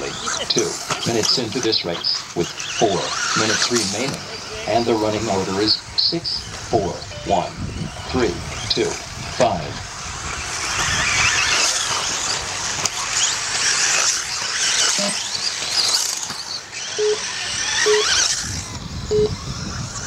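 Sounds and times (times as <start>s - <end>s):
rc car motors whining: 0.0s - 20.0s
short beeps: 7.0s - 7.5s, 15.0s - 15.3s, 17.0s - 18.2s, 19.1s - 19.4s.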